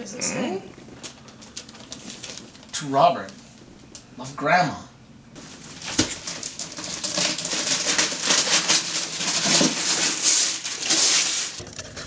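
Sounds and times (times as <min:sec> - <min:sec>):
wrapping paper tearing and rustling: 0:01.0 - 0:02.8, 0:05.4 - 0:11.6.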